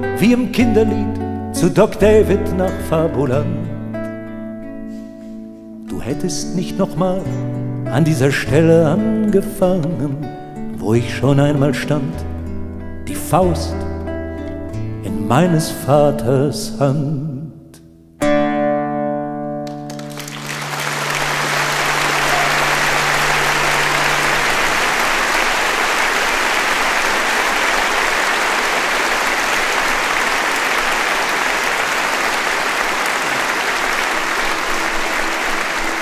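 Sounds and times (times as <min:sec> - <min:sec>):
guitar chord ringing: 0:18.2 - 0:26.0
audience applause: 0:19.7 - 0:36.0.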